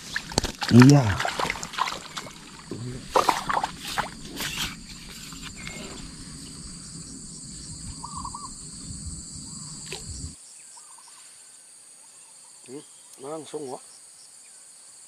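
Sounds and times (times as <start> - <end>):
handling rumble with knocks: 0.0 - 10.4
high-pitched insect chorus: 0.0 - 15.0.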